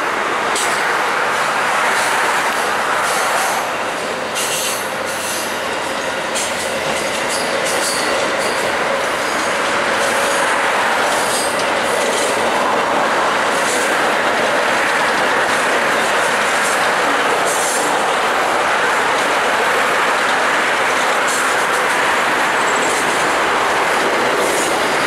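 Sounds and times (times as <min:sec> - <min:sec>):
steel train wheels on rail: 0:00.0 - 0:25.0.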